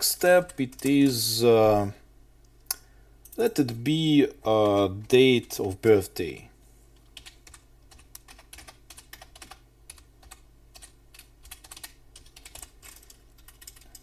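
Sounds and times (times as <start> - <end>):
keyboard typing clicks: 7.2 - 14.0.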